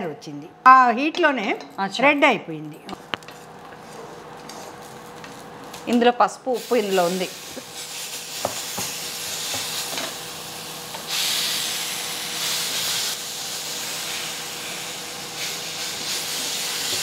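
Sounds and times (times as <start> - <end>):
spices sizzling in a pan: 6.5 - 17.0.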